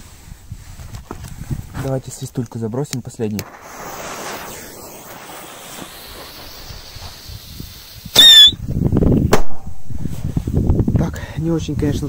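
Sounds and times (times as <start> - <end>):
firecracker fuse hissing: 3.2 - 9.0
firecracker cracking bang: 3.4 - 8.6, 9.2 - 9.8
firecracker shrill whistle: 3.5 - 8.6.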